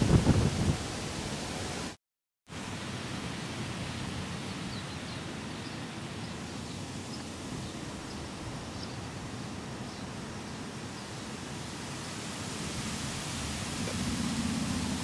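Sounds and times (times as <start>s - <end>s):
wind buffeting the microphone: 0.0s - 1.9s.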